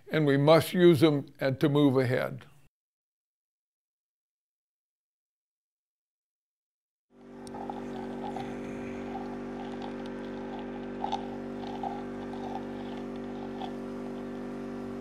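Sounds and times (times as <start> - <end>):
small gasoline engine running: 7.2 - 15.0.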